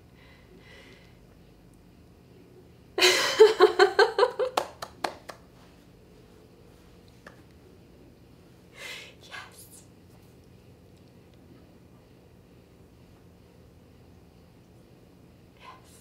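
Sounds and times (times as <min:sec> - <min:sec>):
woman laughing: 0:03.0 - 0:04.8.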